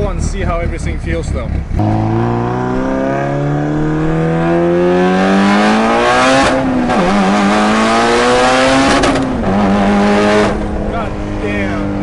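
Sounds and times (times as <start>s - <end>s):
car engine accelerating hard: 0.5s - 12.0s.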